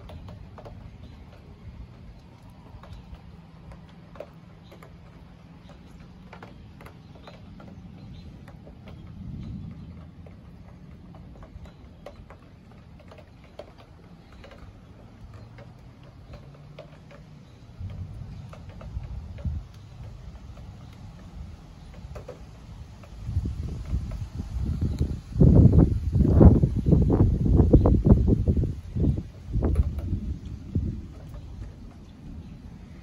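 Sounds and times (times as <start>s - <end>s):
light ticks and taps: 0.0s - 25.1s
low steady rumble: 0.0s - 33.0s.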